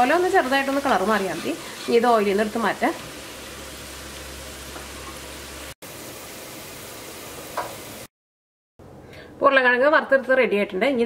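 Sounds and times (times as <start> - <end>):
potatoes frying in oil: 0.0 - 8.1.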